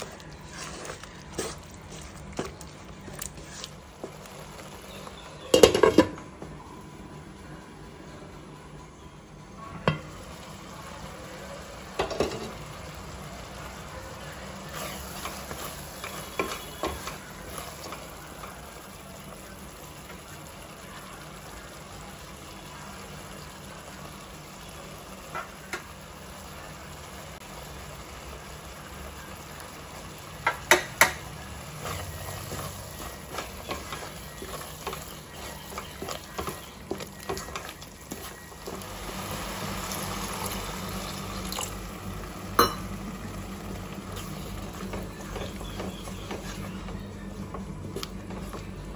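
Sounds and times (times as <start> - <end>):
wooden spatula scraping: 0.0 - 4.2, 31.7 - 38.8
food sizzling in a pan: 0.0 - 6.1, 10.0 - 47.3.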